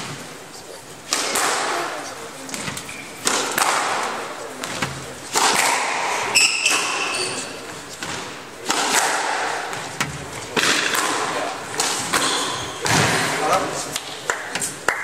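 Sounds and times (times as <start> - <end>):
squash ball hits: 1.1 - 14.7
shoe squeak on hardwood floor: 6.3 - 7.7, 12.2 - 12.9.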